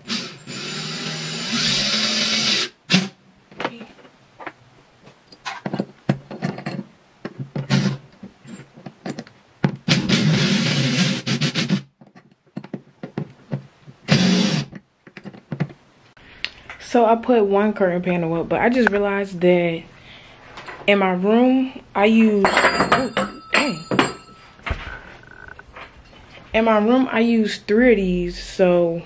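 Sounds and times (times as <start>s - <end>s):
power drill bursts: 0.0s - 3.1s, 14.1s - 14.7s
knocks and rattles: 5.4s - 10.4s, 11.9s - 15.8s, 22.3s - 25.9s.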